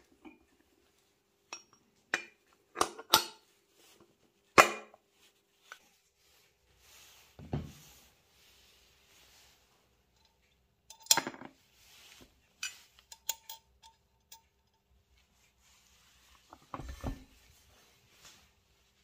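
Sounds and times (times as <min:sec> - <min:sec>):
metal washer clinking: 0:01.5 - 0:03.4, 0:10.2 - 0:11.6, 0:12.5 - 0:14.9.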